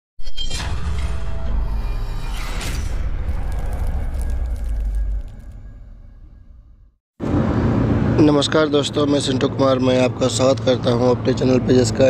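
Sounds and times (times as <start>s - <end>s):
whoosh: 0.5s - 7.0s
deep rumble: 0.6s - 7.8s.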